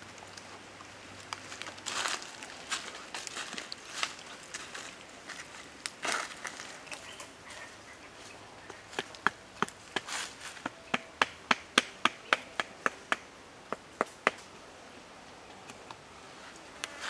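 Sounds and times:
stick knocking wooden stake: 8.9 - 14.4.

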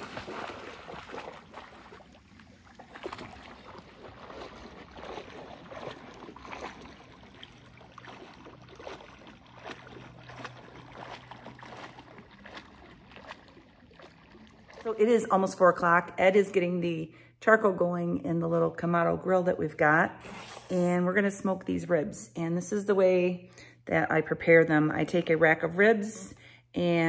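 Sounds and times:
dog splashing in water: 0.0 - 15.4
water lapping: 0.0 - 16.7.

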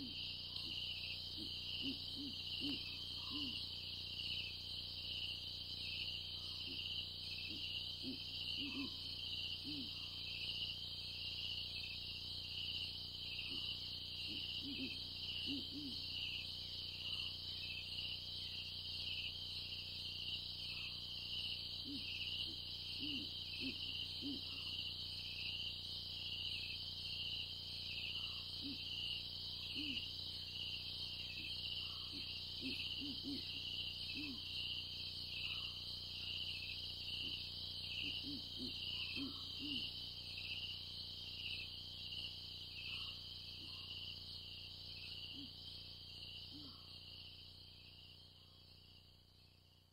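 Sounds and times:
crickets chirping: 0.0 - 49.9
low hooting calls: 1.4 - 3.6, 7.4 - 9.0, 13.5 - 16.2, 21.8 - 24.6, 28.2 - 29.0, 31.4 - 34.5, 38.0 - 40.0.

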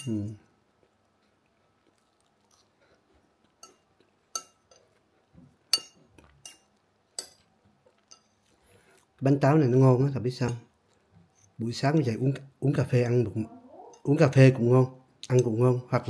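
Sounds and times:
metal spoon clinking on plate: 3.6 - 4.9, 5.7 - 8.5.

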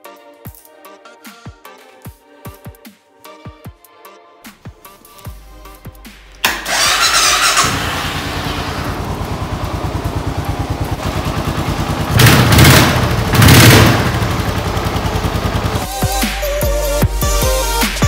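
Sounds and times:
electric starter cranking: 6.4 - 16.1
motorcycle engine idling: 6.4 - 16.2.

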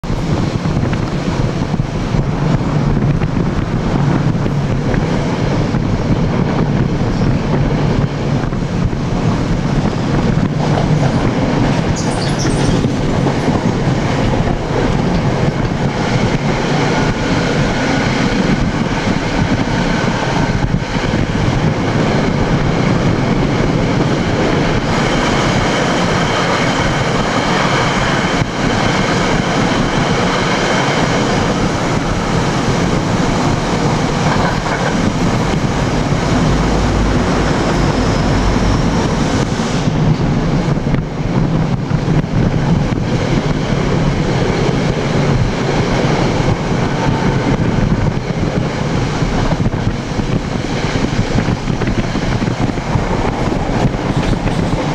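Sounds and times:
train wheels rumbling on rails: 0.0 - 54.9
high wheel squeal: 11.2 - 14.0, 35.6 - 39.9.

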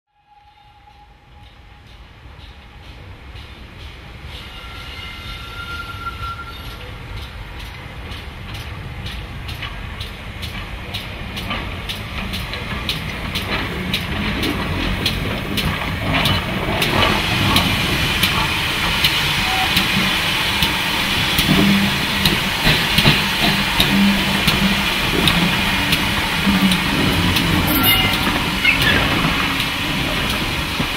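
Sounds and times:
steam locomotive hauling coaches: 0.2 - 30.9
wheels clicking over rail joints: 7.1 - 30.9
steam hiss: 15.1 - 30.9.

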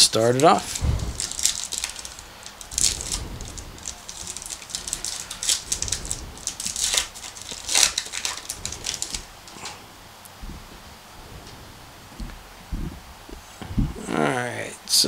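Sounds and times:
plastic wrapper crinkling and tearing: 0.0 - 9.8.

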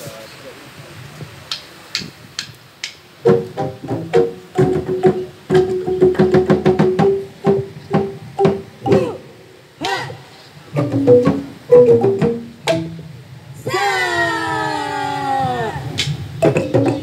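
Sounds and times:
wooden xylophone-like percussion: 3.2 - 9.3, 10.7 - 13.2, 16.4 - 17.0.

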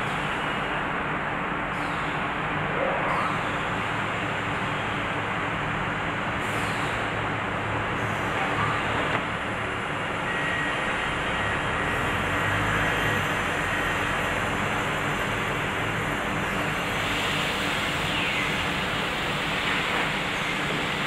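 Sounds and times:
edge-trimming saw machine drone: 7.5 - 21.0.

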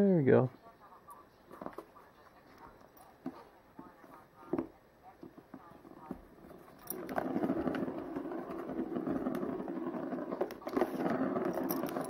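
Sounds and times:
plastic ball rolling on track: 5.8 - 12.0.

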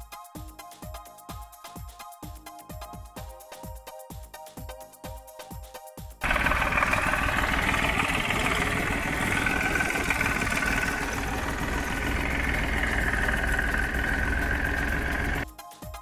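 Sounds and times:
tractor engine running: 6.2 - 15.4.

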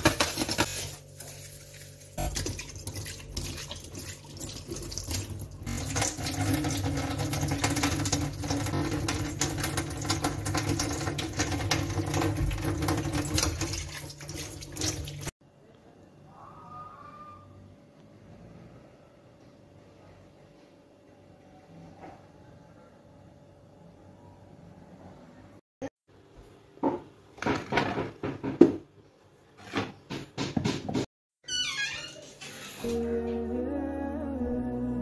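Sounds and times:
water splashing: 1.3 - 15.3.

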